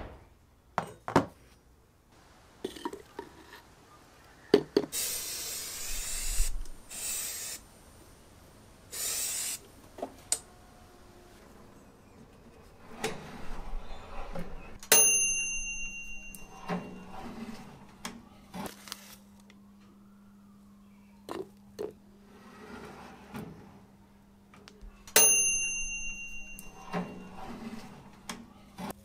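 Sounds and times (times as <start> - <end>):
spray gun hissing: 4.9 - 7.6, 8.9 - 9.6.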